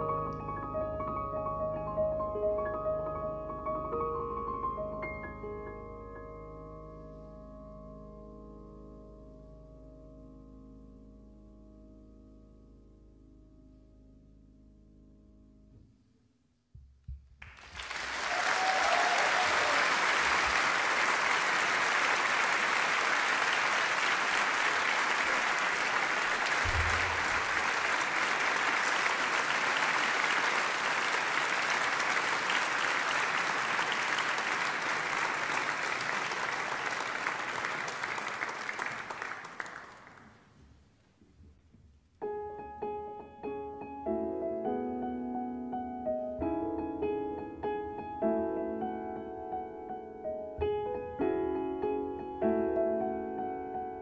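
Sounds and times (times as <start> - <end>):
piano playing: 0.0 - 15.9, 26.3 - 29.4, 42.2 - 54.0
audience applauding: 17.4 - 40.4.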